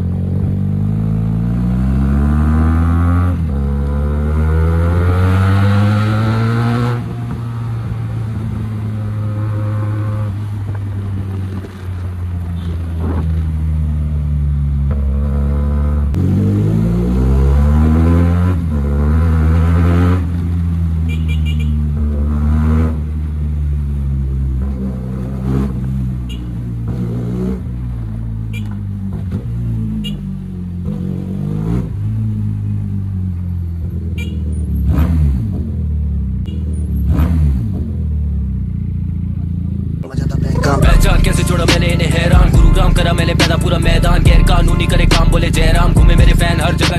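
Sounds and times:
motorcycle engine with loud exhaust: 0.0s - 46.9s
exhaust cracks: 40.0s - 46.9s.

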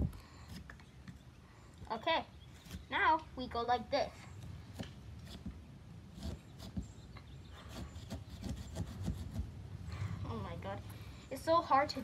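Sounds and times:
saw scraping through pumpkin rind: 4.7s - 6.9s, 7.5s - 9.5s.

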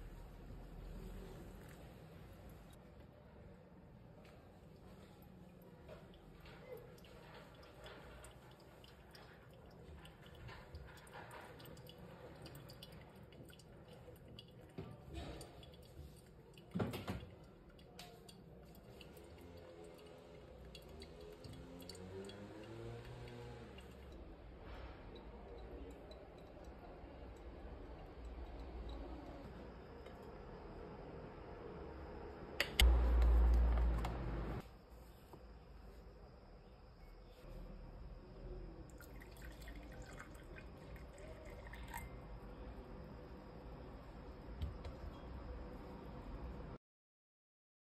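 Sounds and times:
water trickling through coffee filter: 4.6s - 30.5s, 38.8s - 43.2s.

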